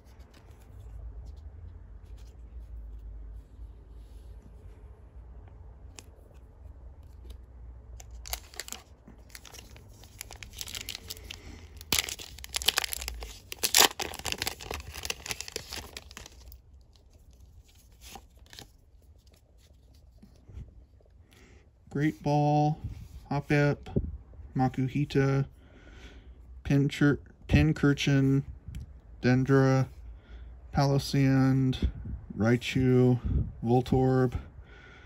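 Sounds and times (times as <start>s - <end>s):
foil wrapper crinkling: 8.0s - 18.8s.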